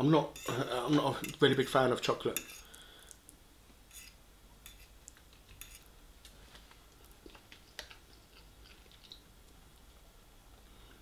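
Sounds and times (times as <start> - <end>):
metal fork scraping a plate: 0.4 - 1.4, 2.4 - 2.7, 3.9 - 4.9, 5.6 - 5.9.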